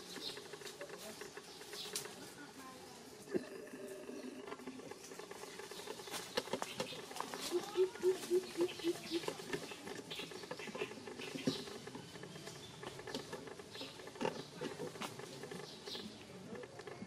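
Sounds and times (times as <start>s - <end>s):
rustling in dry leaves: 4.5s - 16.0s.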